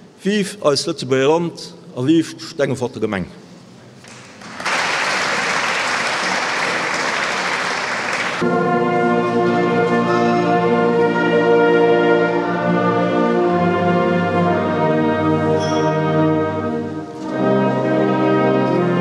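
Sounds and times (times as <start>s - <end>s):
audience applause: 4.1s - 8.4s.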